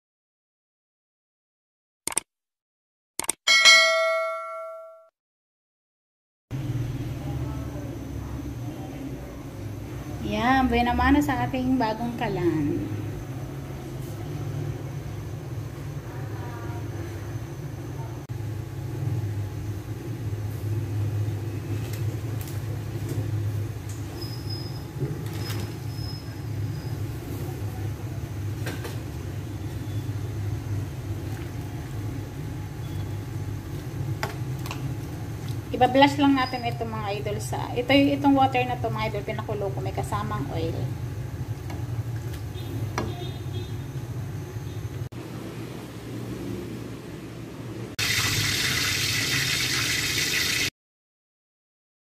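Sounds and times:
pot hissing on stove: 0:48.0 - 0:50.7.

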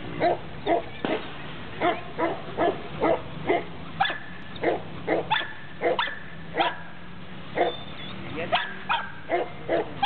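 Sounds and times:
dog barking: 0:01.8 - 0:06.9, 0:07.6 - 0:07.8, 0:08.5 - 0:10.0
dog whining: 0:07.6 - 0:08.2.

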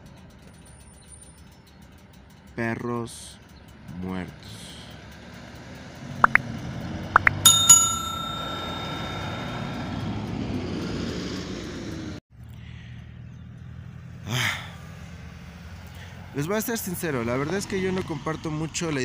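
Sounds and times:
metallic bell-like ring: 0:07.2 - 0:10.3.

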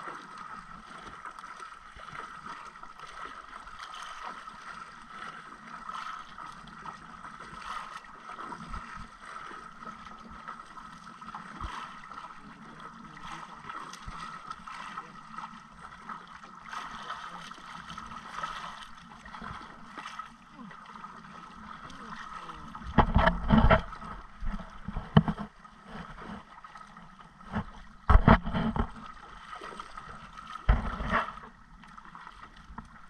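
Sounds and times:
sea water lapping against hull: 0:00.0 - 0:33.0
short splashes: 0:16.6 - 0:26.8.

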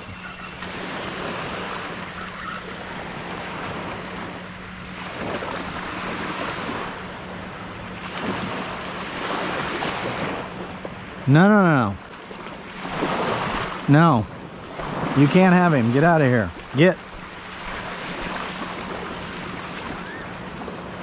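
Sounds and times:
wind on microphone: 0:00.0 - 0:04.4
surf breaking on a beach: 0:00.0 - 0:21.0.

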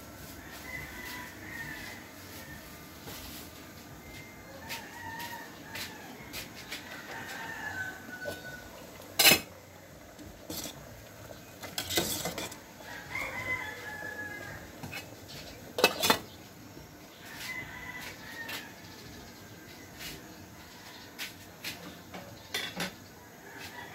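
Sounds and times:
rooster crowing: 0:00.3 - 0:02.8, 0:04.5 - 0:09.0, 0:12.4 - 0:15.0, 0:17.2 - 0:19.0, 0:23.4 - 0:23.9
metal ladle clinking on pot: 0:09.1 - 0:09.6.

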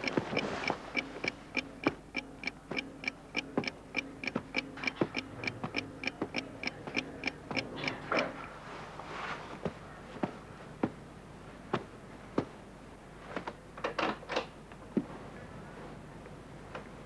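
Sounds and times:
clock ticking: 0:00.0 - 0:08.3.

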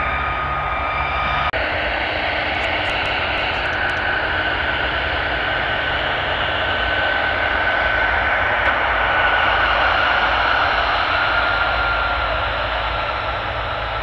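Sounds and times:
high jet whine: 0:00.0 - 0:14.0
jet engine roar: 0:00.0 - 0:14.0.

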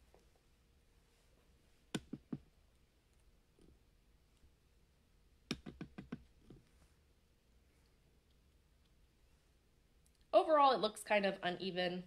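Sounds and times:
turtle clicks and taps: 0:02.0 - 0:02.5, 0:05.5 - 0:06.6.

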